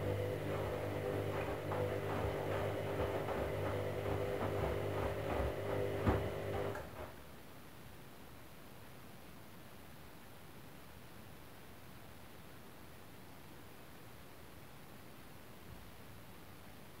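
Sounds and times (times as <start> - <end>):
laundry knocking in drum: 0.0 - 7.2
washing machine motor hum: 0.0 - 7.2.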